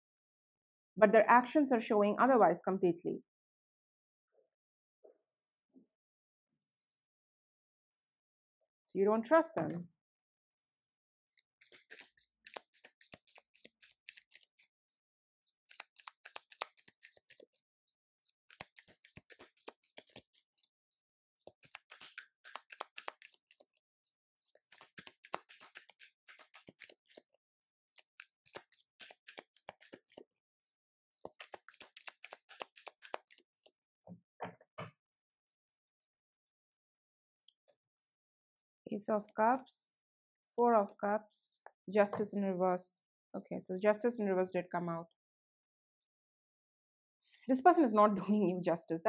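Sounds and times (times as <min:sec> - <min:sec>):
cards being shuffled: 0:11.4 - 0:14.7, 0:15.6 - 0:17.6, 0:18.2 - 0:20.6, 0:21.4 - 0:23.7, 0:24.5 - 0:30.2, 0:31.2 - 0:33.7.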